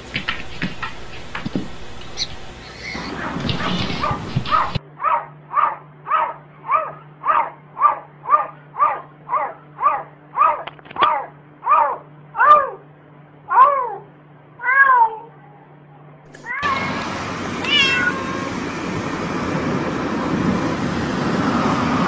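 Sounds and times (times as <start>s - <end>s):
cat meowing: 14.6s - 15.3s, 17.6s - 18.6s.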